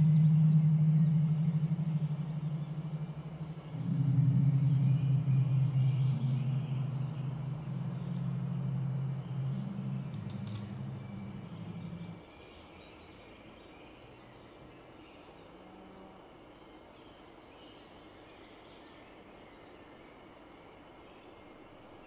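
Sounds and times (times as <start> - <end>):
low synthesizer drone: 0.0 - 12.2.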